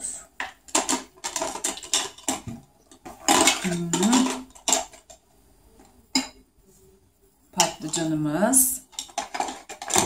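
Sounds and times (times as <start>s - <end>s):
plastic toy dishes clattering: 0.4s - 5.2s, 7.6s - 8.2s, 8.8s - 10.0s.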